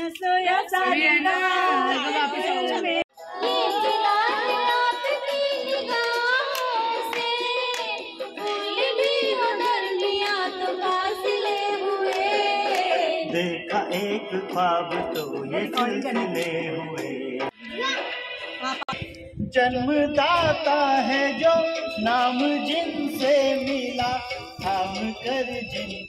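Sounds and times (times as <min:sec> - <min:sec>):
woman singing into microphone: 0:00.0 - 0:13.4
backing music: 0:00.8 - 0:26.0.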